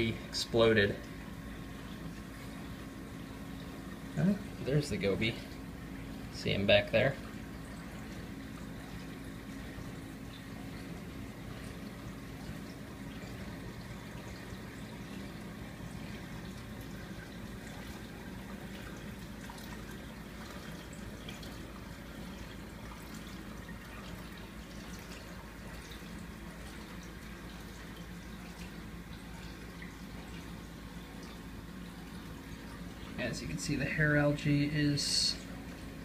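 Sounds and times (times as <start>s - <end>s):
low hum of pumps: 0.0s - 36.0s
water trickling and dripping: 0.0s - 36.0s.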